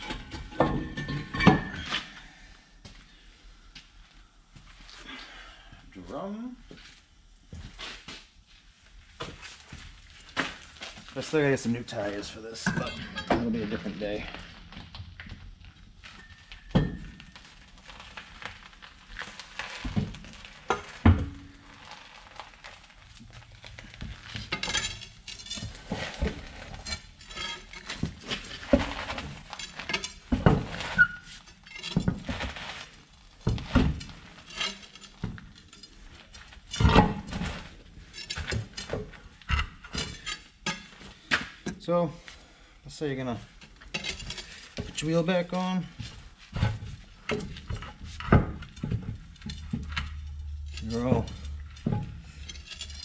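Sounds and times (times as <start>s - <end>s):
metallic clinks and clanks of tools: 0.0s - 2.2s, 12.6s - 14.2s, 24.3s - 32.2s, 33.7s - 38.9s, 39.5s - 41.2s, 43.8s - 45.1s, 47.3s - 53.0s.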